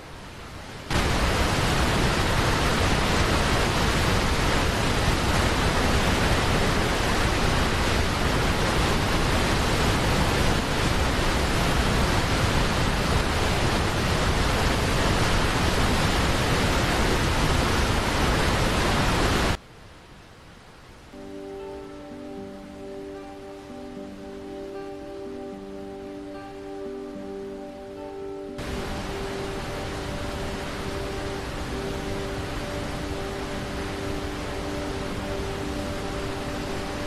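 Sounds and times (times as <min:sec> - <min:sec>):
waterfall rushing: 0:00.0 - 0:19.6, 0:21.1 - 0:37.0.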